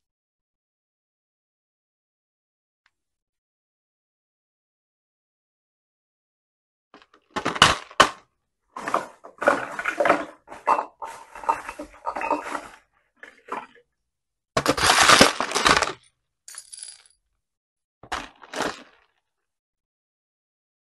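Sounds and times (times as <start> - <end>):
plastic beads clattering: 14.6 - 17.1.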